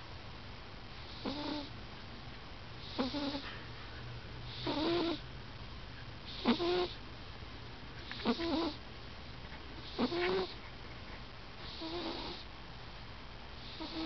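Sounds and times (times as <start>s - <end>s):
cat snoring loudly: 1.1s - 1.7s, 2.8s - 3.4s, 4.5s - 5.2s, 6.3s - 7.0s, 8.2s - 8.8s, 9.8s - 10.6s, 11.6s - 12.4s, 13.6s - 14.0s.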